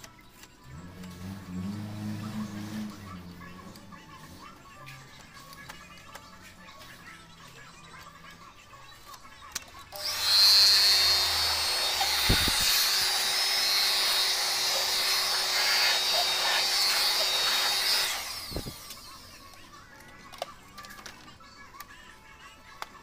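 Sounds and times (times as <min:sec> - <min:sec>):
electric blower whining: 0:00.6 - 0:04.4, 0:09.9 - 0:19.3.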